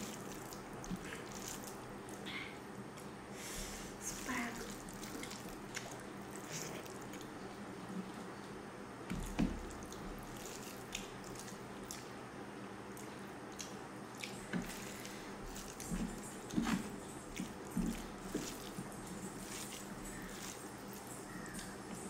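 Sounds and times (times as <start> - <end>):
chewing and lip smacks: 4.7 - 7.4, 9.7 - 12.2, 12.9 - 21.9
food squished by hand: 12.9 - 21.8.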